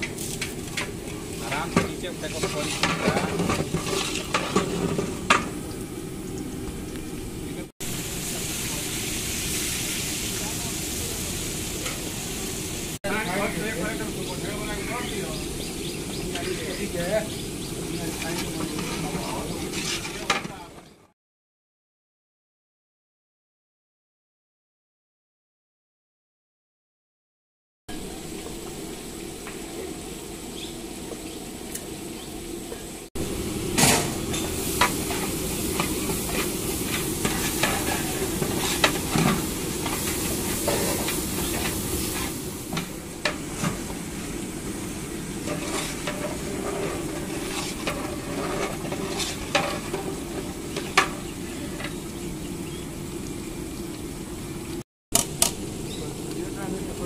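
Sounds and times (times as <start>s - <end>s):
curry sizzling: 0.0s - 21.0s, 27.9s - 57.0s
metal spatula scraping pot: 0.1s - 5.3s, 18.0s - 20.5s, 33.8s - 43.9s, 45.3s - 52.0s.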